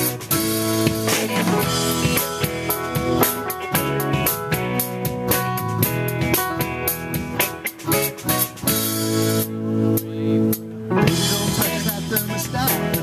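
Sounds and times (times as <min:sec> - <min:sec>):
drum kit beat: 0:00.0 - 0:13.0
live rock band playing: 0:00.0 - 0:13.0
strummed guitars: 0:00.0 - 0:13.0.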